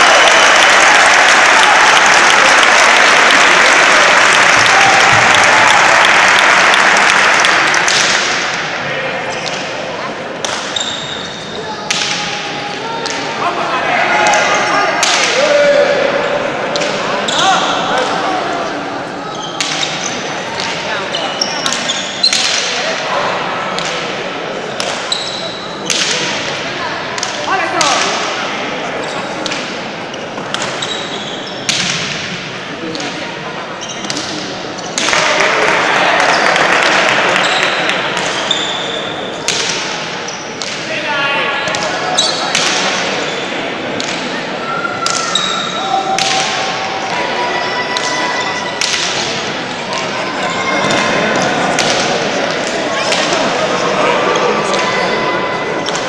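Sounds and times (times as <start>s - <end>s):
crowd applauding: 0.0s - 8.5s, 35.2s - 38.0s
crowd voices: 0.0s - 56.0s.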